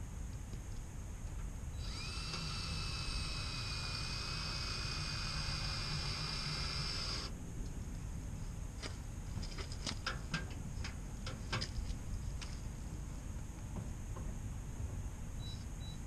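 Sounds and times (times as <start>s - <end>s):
cordless drill whining: 1.8s - 7.3s.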